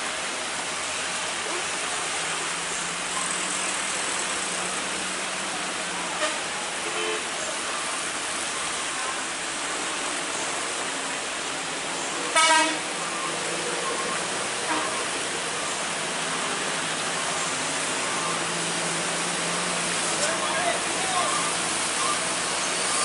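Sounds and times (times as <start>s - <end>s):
heavy rain on road: 0.0s - 23.0s
vehicle horn: 6.2s - 7.2s, 12.3s - 12.9s, 14.6s - 15.1s.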